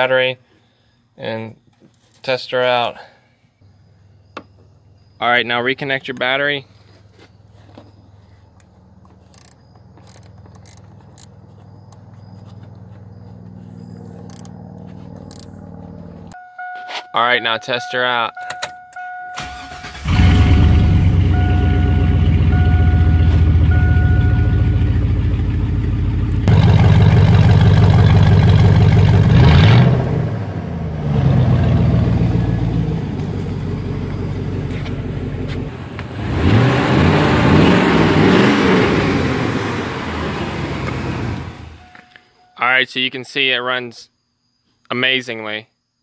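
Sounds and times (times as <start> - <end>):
truck engine idling and revving: 7.1 - 16.4, 19.0 - 42.2
dashboard chime beeping: 16.4 - 19.5, 21.3 - 24.8, 41.8 - 42.6.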